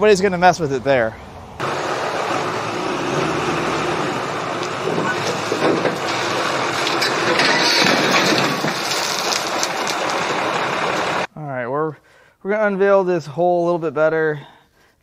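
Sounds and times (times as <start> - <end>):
loader engine running: 1.2 - 11.3.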